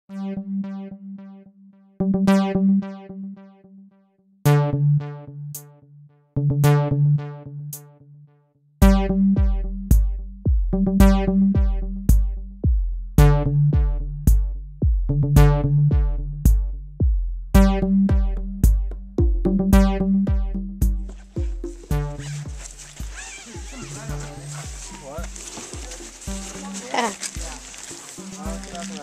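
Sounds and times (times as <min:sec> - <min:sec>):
background music with steady beat: 0:08.8 - 0:29.0
heavy bass beat: 0:08.8 - 0:29.0.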